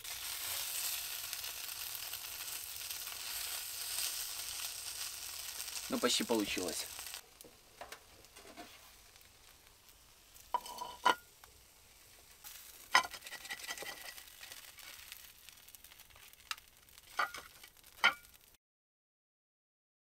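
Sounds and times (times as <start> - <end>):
food sizzling in a pan: 0.0 - 18.6.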